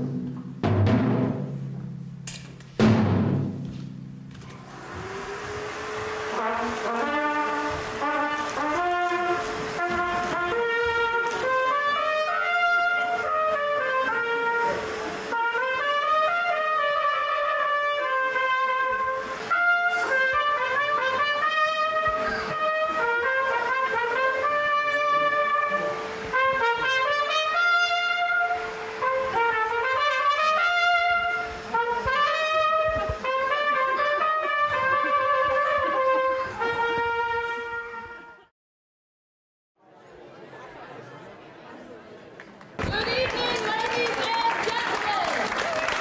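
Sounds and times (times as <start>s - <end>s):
brass instruments playing melody: 4.6s - 38.5s.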